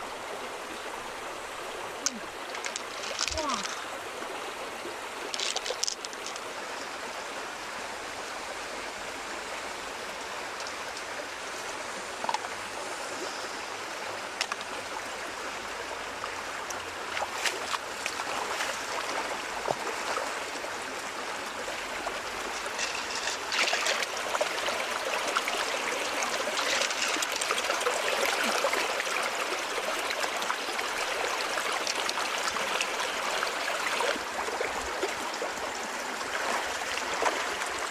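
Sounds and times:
stream running over rocks: 0:00.0 - 0:37.9.

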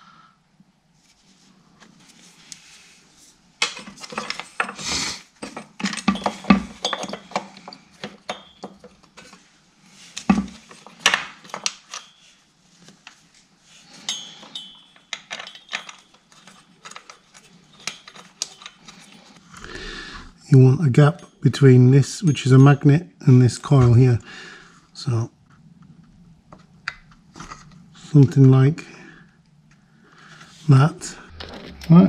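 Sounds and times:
metal parts clicking and clinking: 0:03.6 - 0:12.4, 0:13.8 - 0:19.5
small parts tapping on housing: 0:05.4 - 0:09.4, 0:14.1 - 0:19.2.

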